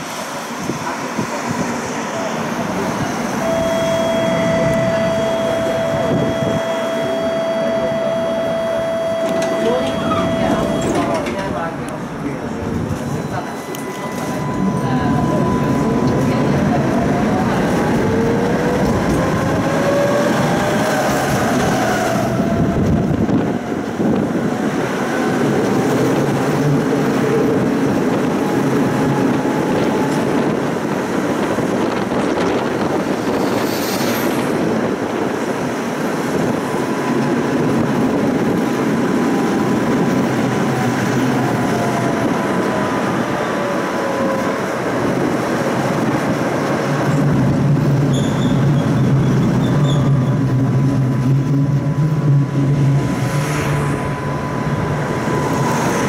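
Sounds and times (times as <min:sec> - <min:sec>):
tram wheels rumbling: 0:00.0 - 0:56.0
rising whine: 0:02.6 - 0:11.3, 0:12.8 - 0:27.2, 0:48.9 - 0:56.0
high squeal: 0:03.4 - 0:11.2, 0:13.1 - 0:16.4, 0:33.2 - 0:34.5, 0:48.1 - 0:50.5.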